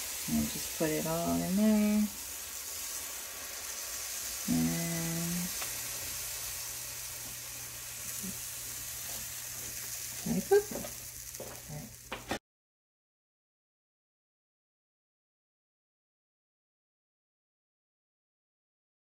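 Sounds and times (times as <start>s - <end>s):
batter sizzling in frying pan: 0.0s - 12.4s.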